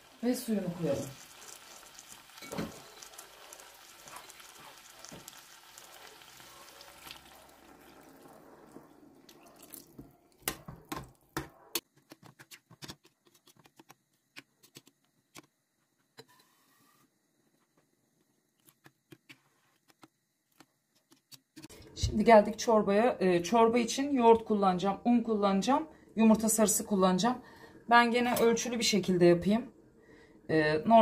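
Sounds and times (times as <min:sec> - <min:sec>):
water pouring into a pot: 0:00.0 - 0:10.1.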